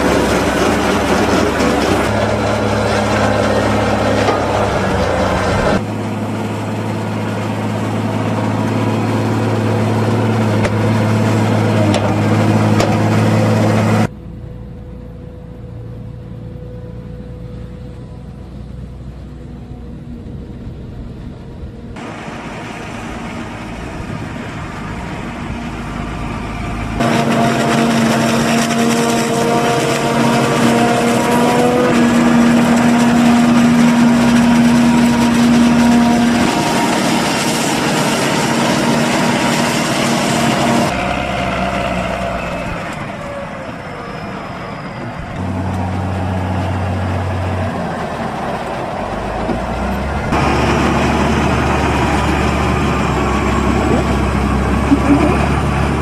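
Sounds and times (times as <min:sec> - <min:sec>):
forage harvester running: 0:00.0 - 0:56.0
tractor engines running: 0:00.0 - 0:56.0.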